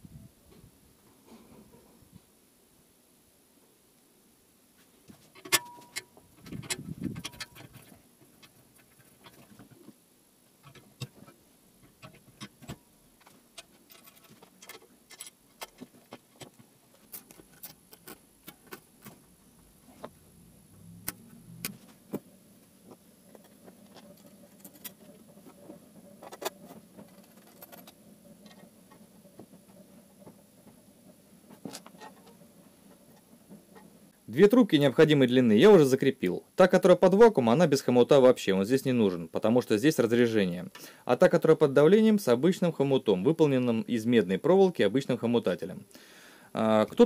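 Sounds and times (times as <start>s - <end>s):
metal parts and tools clicking: 5.3s - 9.8s, 10.6s - 19.2s, 23.3s - 25.6s, 26.2s - 29.0s.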